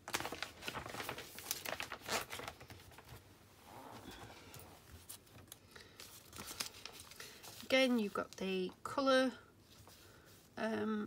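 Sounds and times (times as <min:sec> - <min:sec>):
paper pages rustling: 0:00.0 - 0:03.3, 0:04.2 - 0:08.5.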